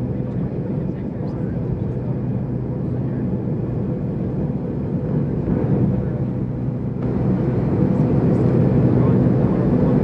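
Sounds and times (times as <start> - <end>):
jet engine noise: 0.0 - 10.0
low cabin hum: 0.0 - 10.0.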